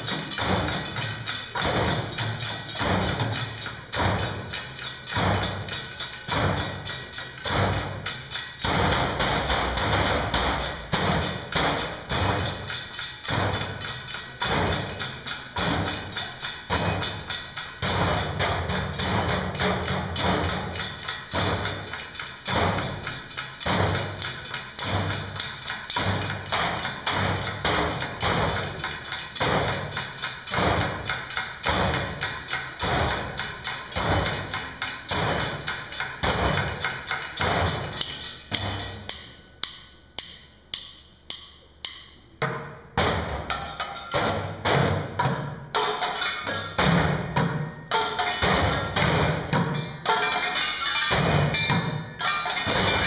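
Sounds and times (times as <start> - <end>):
drumming on buckets and trash cans: 0.0 - 39.2, 42.4 - 53.0.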